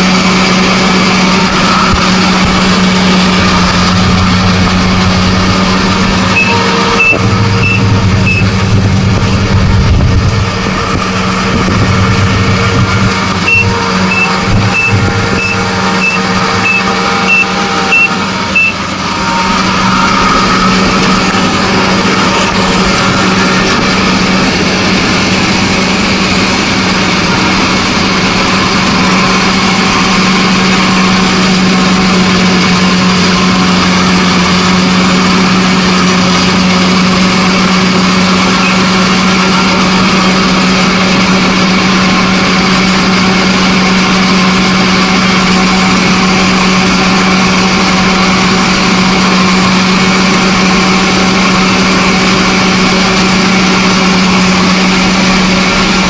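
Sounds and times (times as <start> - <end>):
combine harvester running: 0.0 - 56.0
short high electronic beeps: 6.4 - 8.5, 13.4 - 18.8.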